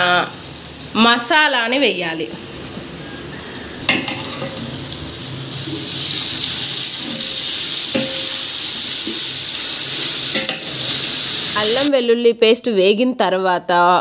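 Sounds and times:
paste sizzling in hot oil: 2.2 - 11.9.

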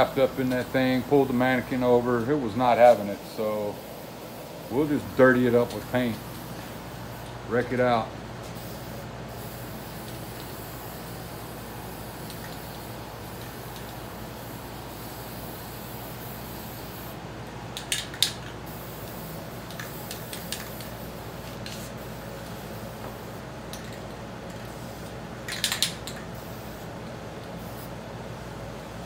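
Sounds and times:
steady background hum: 0.0 - 29.0
spray paint can squirts: 25.5 - 26.2.

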